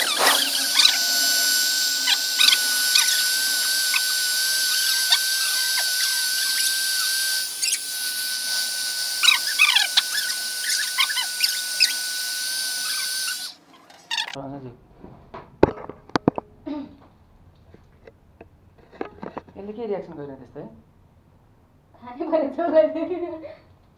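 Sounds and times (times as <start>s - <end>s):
puppy squeaking and whimpering: 0.0s - 1.0s, 9.2s - 12.0s
hair dryer running: 0.0s - 13.6s.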